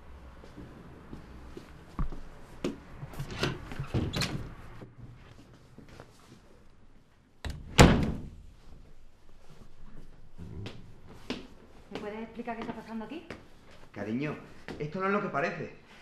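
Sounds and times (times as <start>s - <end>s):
door banging shut: 7.5s - 8.4s.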